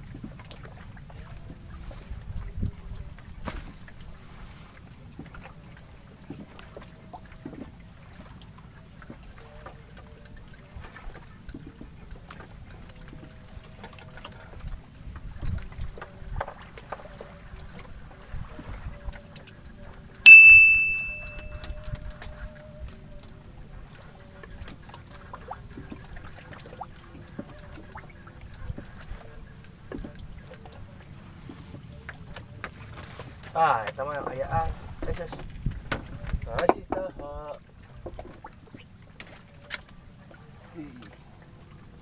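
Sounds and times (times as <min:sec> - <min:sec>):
loud bell-like ding: 0:20.3 - 0:21.8.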